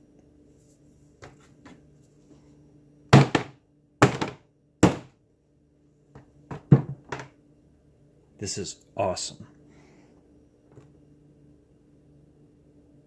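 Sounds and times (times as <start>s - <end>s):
rubber mallet dull thunks: 3.2s - 5.1s.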